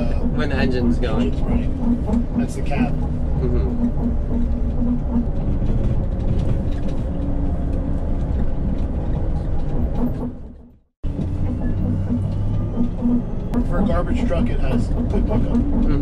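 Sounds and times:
road and tyre rumble: 0.0s - 16.0s.

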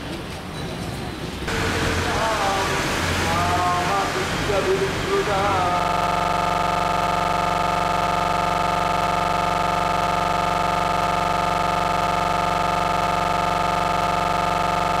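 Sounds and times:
electronic drone: 1.5s - 15.0s.

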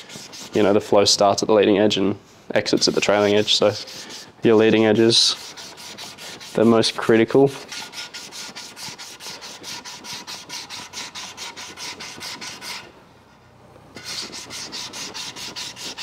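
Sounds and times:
sandpaper rubbing back and forth: 0.0s - 0.9s, 2.6s - 12.9s, 14.0s - 16.0s.

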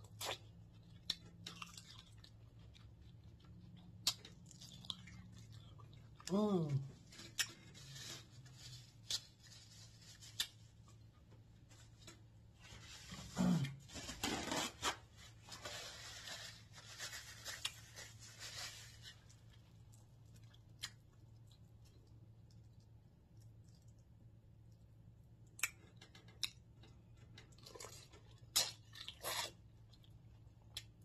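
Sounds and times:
paper towel rustling: 12.6s - 19.3s.

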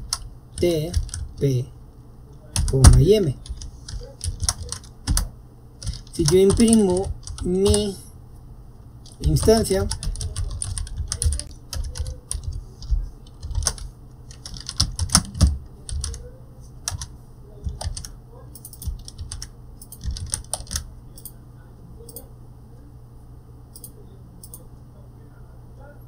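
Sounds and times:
computer keyboard typing: 0.0s - 1.4s, 2.6s - 7.9s, 9.0s - 21.4s.

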